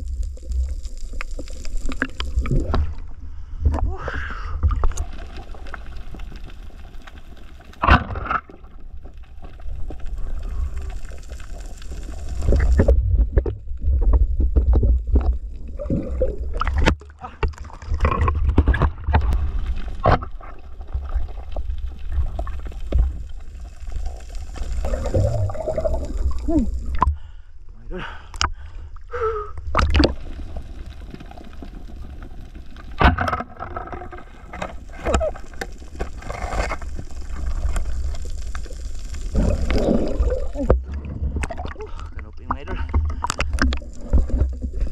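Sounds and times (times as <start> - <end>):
muffled underwater gurgling: 24.6 - 27.3, 34.4 - 44.9.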